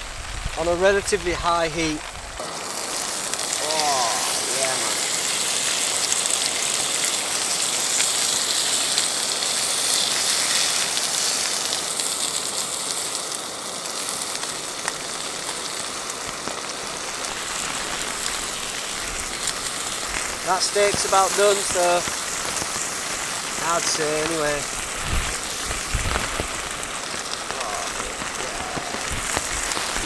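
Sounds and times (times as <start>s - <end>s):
steak sizzling in a pan: 1.6s - 30.0s.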